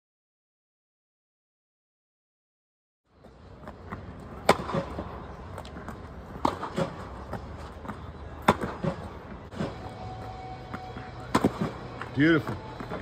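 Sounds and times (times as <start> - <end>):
tennis ball bouncing: 3.7 - 9.6, 10.6 - 13.0.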